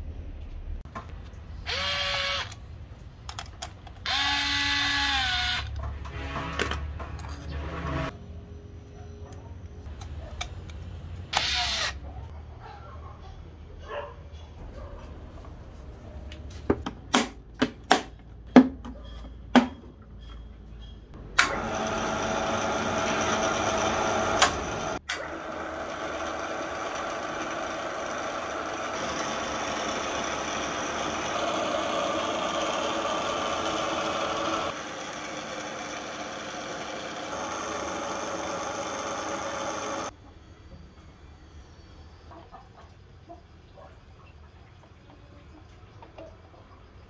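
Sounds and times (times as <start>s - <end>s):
drill press motor humming: 1.6s - 2.6s, 4.0s - 6.7s, 21.4s - 40.1s.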